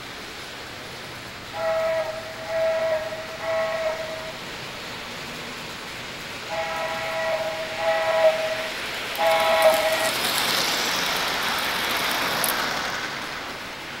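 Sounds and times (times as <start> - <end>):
model train rolling past: 0.0 - 14.0
model train electronic horn: 1.5 - 4.4, 6.5 - 10.2.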